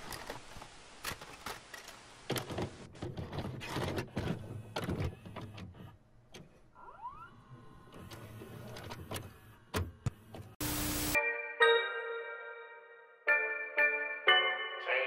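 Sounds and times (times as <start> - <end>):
faint tape hiss: 0.0 - 2.9
rising squeak: 6.8 - 8.7.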